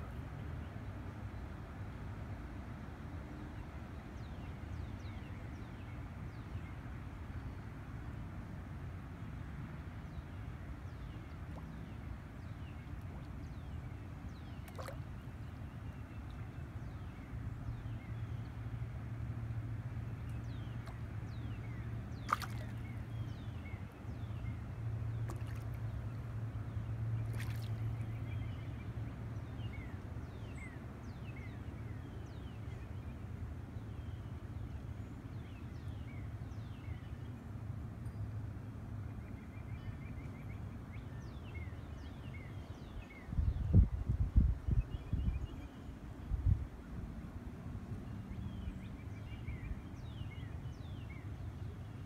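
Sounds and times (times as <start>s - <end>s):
wind rumbling on microphone: 43.0s - 47.2s.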